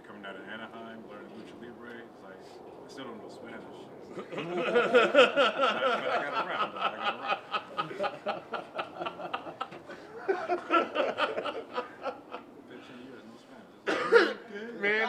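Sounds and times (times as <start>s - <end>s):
men laughing: 4.1s - 13.0s.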